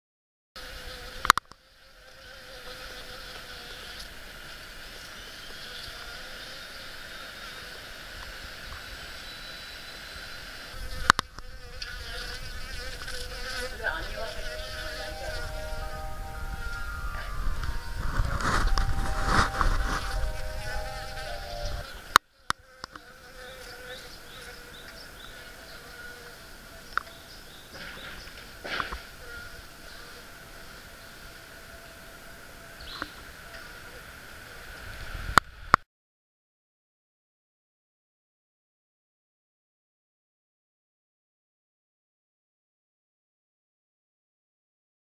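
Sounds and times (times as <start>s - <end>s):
bees buzzing in flight: 10.6s - 27.3s.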